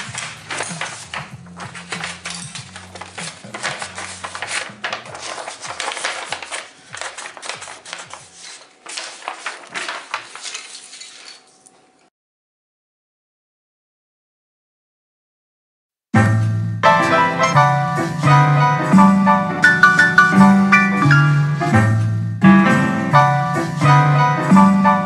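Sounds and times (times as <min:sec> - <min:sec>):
pencil scratching on paper: 0:00.0 - 0:11.1
coloured pencils clattering: 0:00.0 - 0:11.9
paper rustling: 0:00.0 - 0:12.0.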